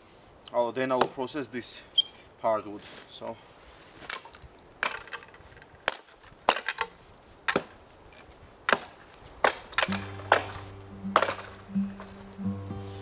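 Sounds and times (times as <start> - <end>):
axe chopping wood: 5.8 - 7.8, 8.7 - 12.3
background music: 9.8 - 13.0.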